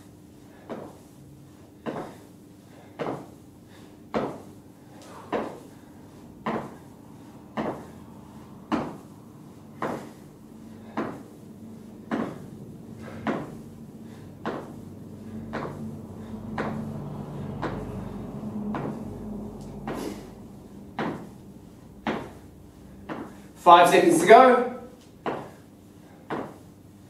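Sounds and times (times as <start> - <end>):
feet landing on rubber floor: 0.5 - 1.1, 1.8 - 3.4, 4.1 - 16.9, 18.7 - 19.0, 19.8 - 23.5, 25.0 - 25.6, 26.2 - 26.7.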